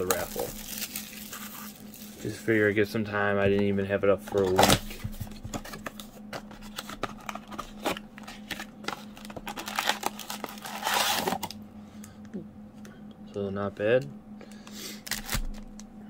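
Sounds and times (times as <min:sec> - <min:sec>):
foil packs crinkling: 0:00.0 - 0:02.4, 0:04.3 - 0:11.5, 0:15.0 - 0:15.7.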